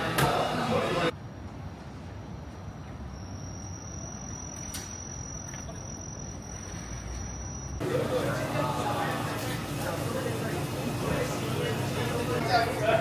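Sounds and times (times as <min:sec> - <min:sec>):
thin high whine: 0:03.0 - 0:13.0.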